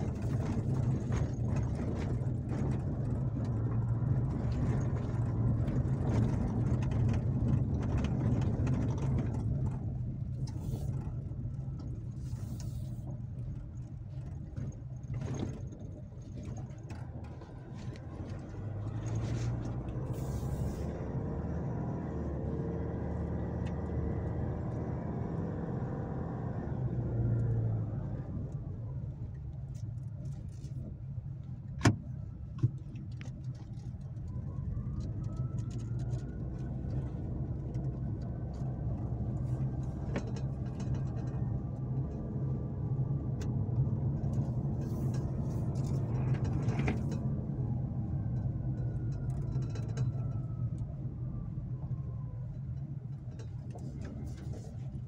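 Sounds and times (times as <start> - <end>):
diesel engine low hum: 0.0 - 55.0.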